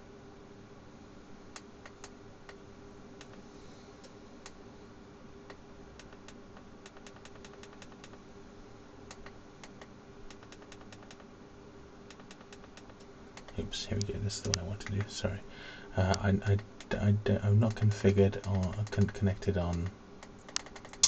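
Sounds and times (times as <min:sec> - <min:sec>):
faint steady hum: 0:00.0 - 0:21.0
computer keyboard keys pressed: 0:06.0 - 0:08.2, 0:09.1 - 0:11.2, 0:12.1 - 0:13.6, 0:17.6 - 0:19.9, 0:20.5 - 0:21.0.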